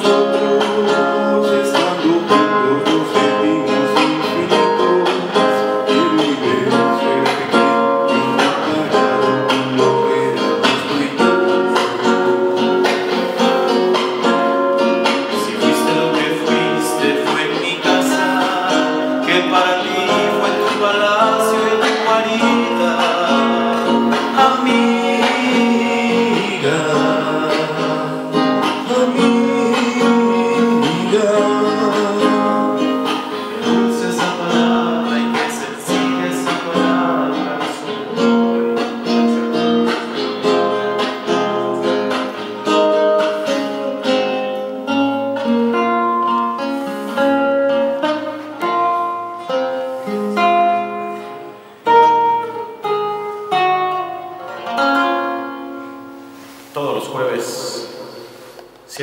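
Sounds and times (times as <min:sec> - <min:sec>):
men singing: 0:00.0 - 0:12.5, 0:15.3 - 0:38.6
nylon-string guitar: 0:00.0 - 0:59.0.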